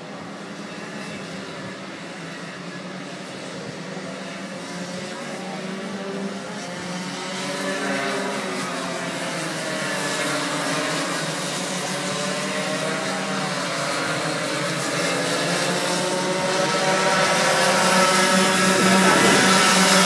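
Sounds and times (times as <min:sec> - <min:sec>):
kart engines buzzing: 0:00.0 - 0:20.0.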